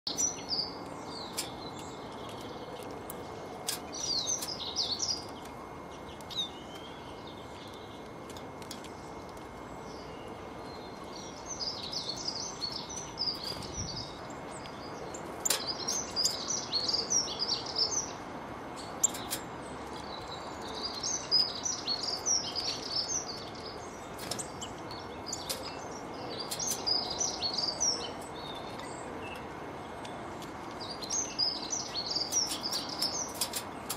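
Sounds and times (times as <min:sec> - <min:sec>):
songbirds twittering: 0:00.1 - 0:33.9
steady outdoor hiss: 0:00.1 - 0:33.9.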